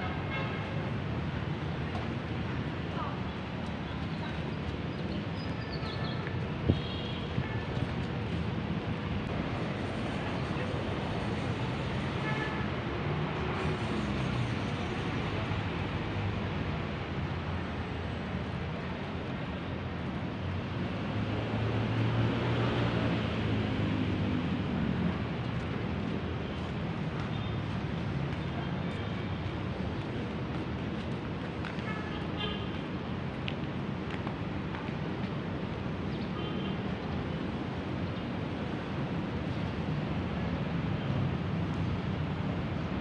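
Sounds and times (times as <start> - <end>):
hum of passing vehicles: 19.0 - 27.0.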